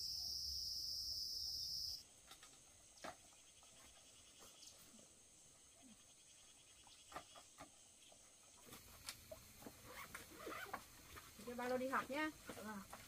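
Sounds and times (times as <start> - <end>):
insects trilling: 0.0 - 2.1.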